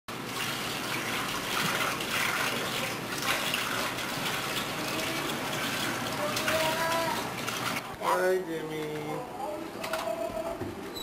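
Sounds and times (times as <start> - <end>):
dishes being washed: 0.1 - 8.0.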